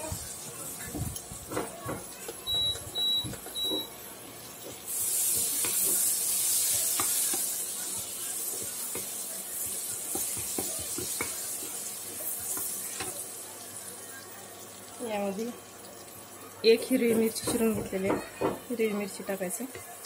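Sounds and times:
butter and seeds sizzling in pan: 0:00.0 - 0:20.0
wooden spatula tapping and scraping: 0:00.8 - 0:04.0, 0:04.6 - 0:13.2, 0:17.1 - 0:18.7.

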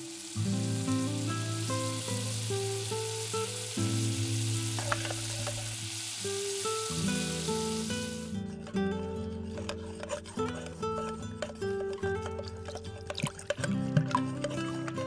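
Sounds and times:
butter sizzling in a saucepan: 0:00.0 - 0:08.5, 0:09.4 - 0:15.0
plucked guitar music: 0:00.1 - 0:15.0
whisk clinking against pan: 0:09.4 - 0:15.0.

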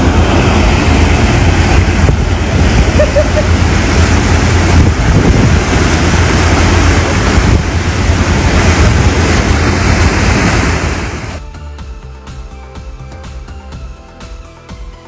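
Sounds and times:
wind buffeting microphone: 0:00.0 - 0:11.4
boat engine low rumble: 0:00.0 - 0:14.8
churning wake water: 0:00.0 - 0:15.0.

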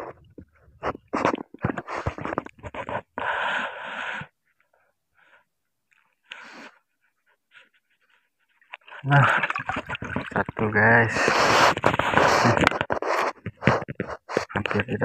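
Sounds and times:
water splashing: 0:08.7 - 0:12.2.

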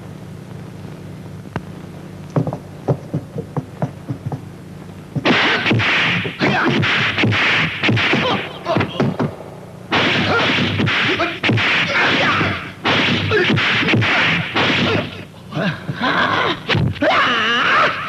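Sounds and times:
punch and kick impacts: 0:05.2 - 0:15.2.

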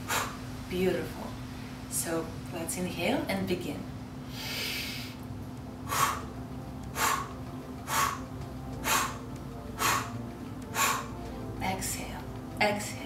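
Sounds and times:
woman hissing inhale: 0:04.2 - 0:05.2, 0:05.9 - 0:06.3, 0:07.0 - 0:07.3, 0:09.8 - 0:10.1, 0:10.7 - 0:11.1
woman sharp forceful exhales: 0:04.3 - 0:05.2.

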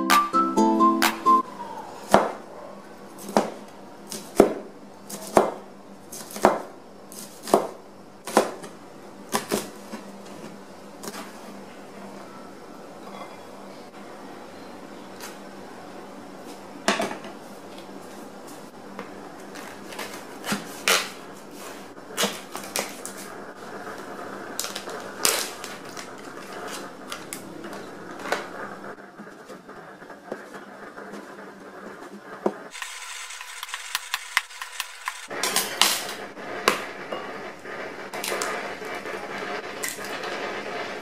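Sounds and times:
ceramic bowl and eggs clicking: 0:32.8 - 0:35.3.

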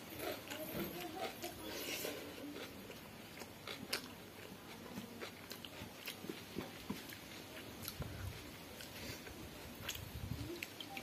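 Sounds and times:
person chewing and biting: 0:00.0 - 0:11.0.

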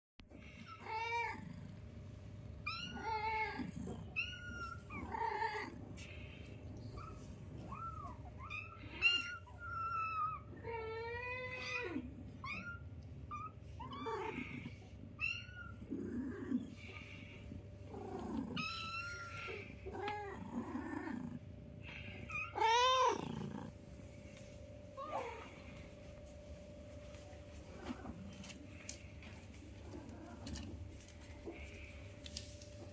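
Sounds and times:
faint steady hum: 0:00.2 - 0:32.9
kittens meowing: 0:02.7 - 0:23.8.

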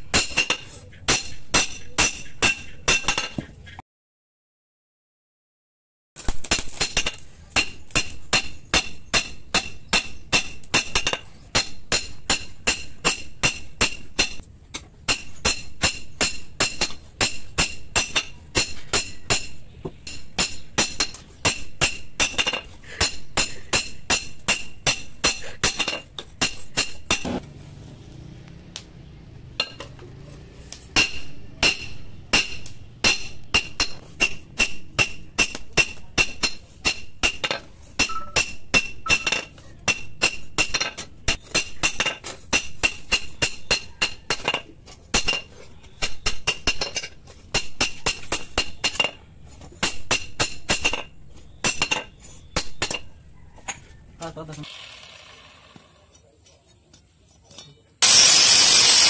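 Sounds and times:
hammer striking hot metal: 0:00.0 - 0:03.3, 0:06.2 - 0:14.5, 0:15.1 - 0:27.4, 0:31.0 - 0:44.5, 0:45.1 - 0:49.2, 0:49.8 - 0:52.0, 0:58.0 - 0:59.0.

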